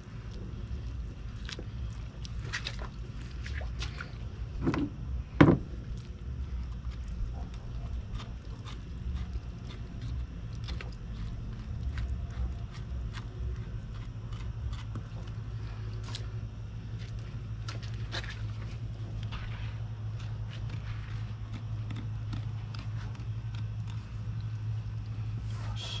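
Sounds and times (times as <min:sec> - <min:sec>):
steady low hum: 0:00.0 - 0:26.0
knife scraping fish ribs: 0:07.5 - 0:15.4.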